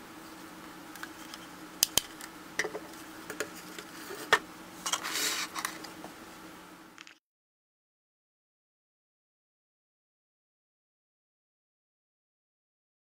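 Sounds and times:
faint steady hum: 0:00.0 - 0:07.2.

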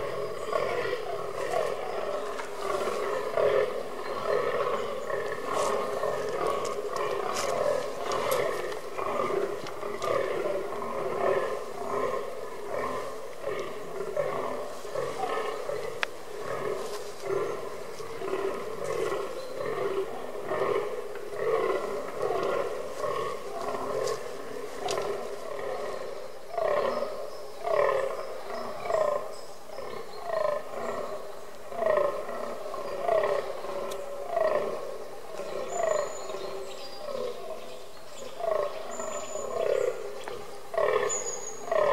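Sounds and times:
deer groaning: 0:00.0 - 0:27.0.

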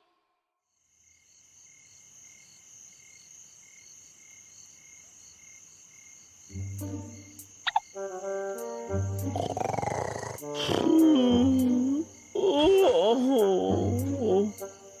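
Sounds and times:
crickets chirping: 0:00.7 - 0:15.0
low music notes: 0:06.6 - 0:09.6.

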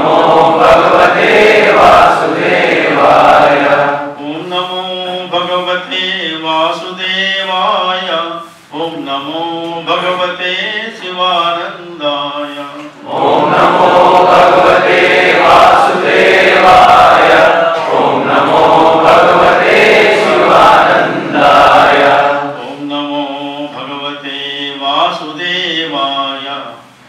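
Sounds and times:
group of voices chanting: 0:00.0 - 0:04.1, 0:13.0 - 0:22.6.

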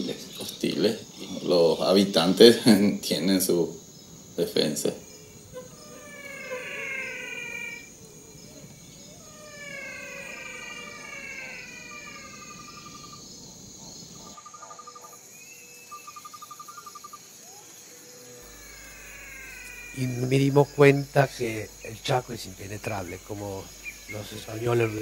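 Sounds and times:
insects trilling: 0:00.0 - 0:25.0
calls sliding down in pitch: 0:05.6 - 0:07.9, 0:09.2 - 0:13.2, 0:18.4 - 0:22.2
fast pulsed trills: 0:18.4 - 0:25.0.

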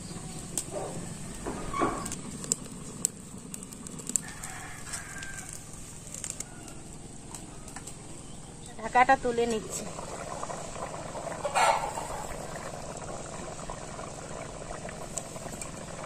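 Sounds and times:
chickens calling: 0:11.2 - 0:12.6.

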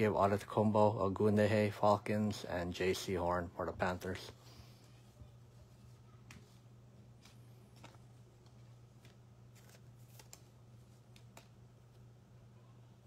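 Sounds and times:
trading cards clicking and rustling: 0:07.2 - 0:12.0.

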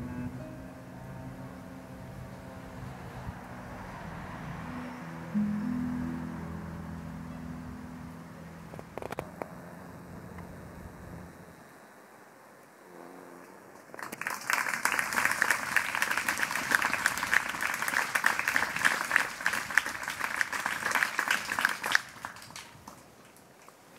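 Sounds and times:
audience applauding: 0:13.9 - 0:23.8.

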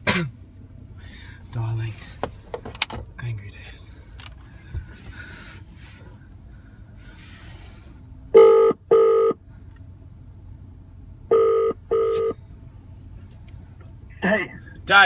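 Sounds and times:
phone ringback tone: 0:08.4 - 0:09.4, 0:11.3 - 0:12.4.

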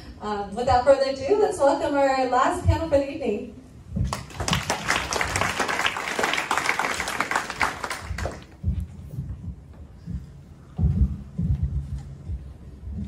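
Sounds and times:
audience applauding: 0:04.1 - 0:08.6.

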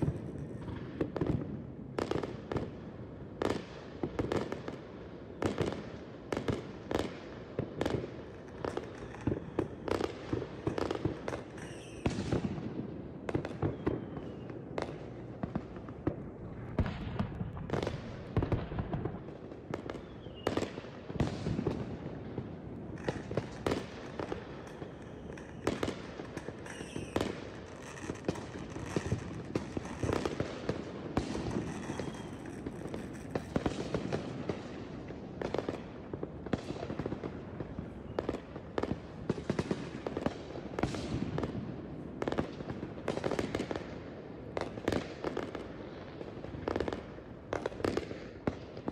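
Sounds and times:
fireworks bangs: 0:07.8 - 0:43.8
fireworks crackling: 0:07.9 - 0:43.8
fireworks whistles: 0:11.4 - 0:12.6, 0:13.4 - 0:14.6, 0:19.9 - 0:20.8, 0:24.6 - 0:30.4, 0:31.2 - 0:34.0.

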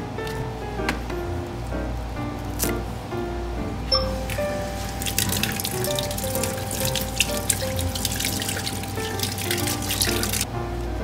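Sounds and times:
background music: 0:00.0 - 0:11.0
tap water splashing into sink: 0:04.2 - 0:10.5.

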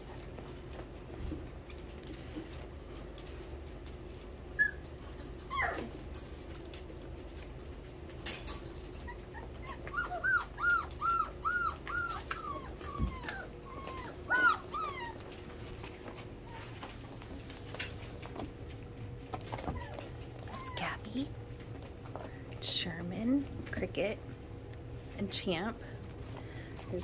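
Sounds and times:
puppies whimpering and yipping: 0:04.5 - 0:05.9, 0:08.9 - 0:17.0, 0:19.5 - 0:20.9
puppy falling squeal: 0:04.6 - 0:04.8, 0:05.5 - 0:05.9, 0:09.3 - 0:15.2.

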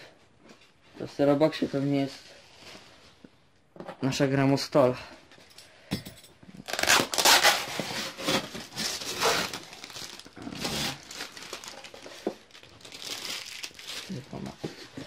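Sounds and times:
packing tape peeling and crumpling: 0:06.6 - 0:15.0.

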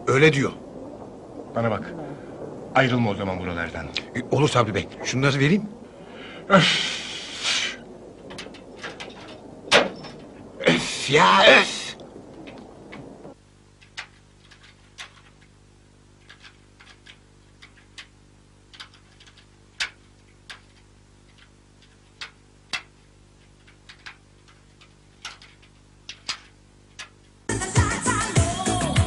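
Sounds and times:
faint low hum: 0:00.0 - 0:27.5
small objects clicking on a table: 0:13.8 - 0:15.5, 0:16.2 - 0:27.3.

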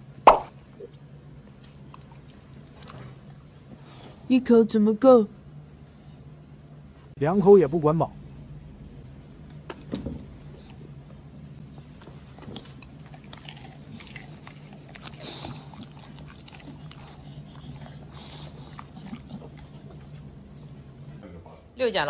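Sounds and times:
dogs chewing: 0:01.4 - 0:04.1, 0:09.5 - 0:21.2.

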